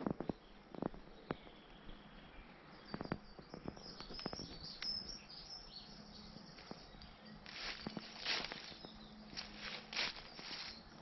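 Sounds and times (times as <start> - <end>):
birds chirping and twittering: 0.0 - 11.0
faint outdoor background: 0.0 - 11.0
footsteps on a path: 6.6 - 11.0.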